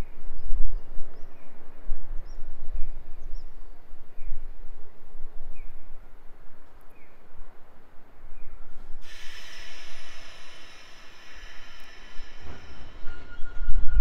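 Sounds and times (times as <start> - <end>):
low rumble: 9.0 - 14.0.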